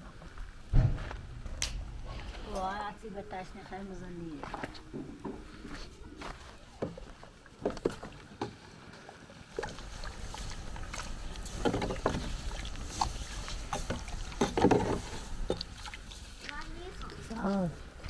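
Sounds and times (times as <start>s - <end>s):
liquid sloshing: 5.5s - 18.0s.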